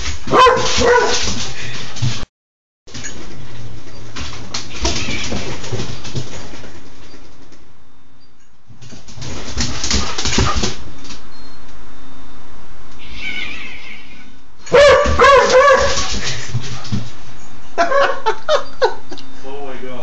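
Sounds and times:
puppy barking: 0.3s - 1.3s, 14.7s - 16.1s
puppy whining: 17.4s - 19.3s.

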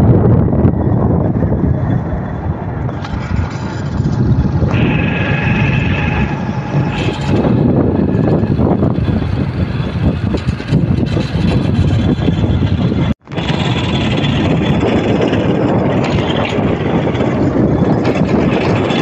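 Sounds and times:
tyre noise on dirt road: 0.0s - 19.0s
vehicle engine running: 0.0s - 19.0s
wind buffeting microphone: 0.0s - 19.0s.

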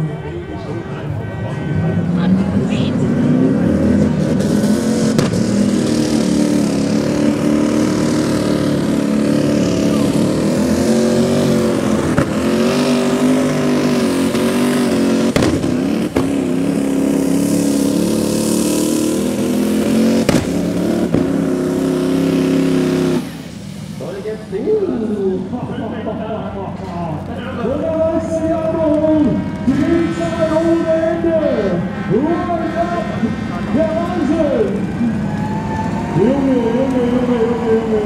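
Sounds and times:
tractor engine running flat out: 3.9s - 38.0s
sharp cracks: 15.3s - 16.4s, 20.2s - 21.5s.

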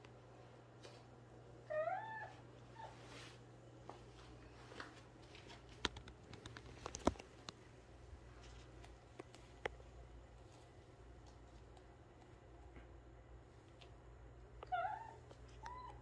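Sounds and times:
light clicks and taps: 4.8s - 7.7s, 8.4s - 9.9s.

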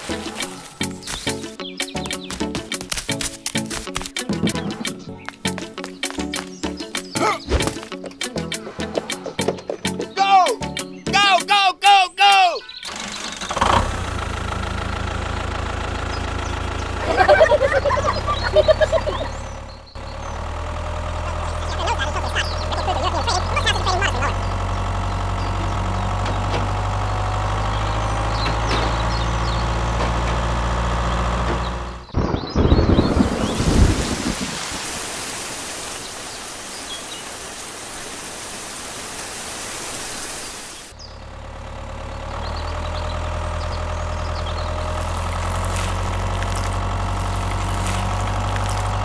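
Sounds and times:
tractor engine idling: 12.7s - 32.2s, 40.9s - 49.0s.

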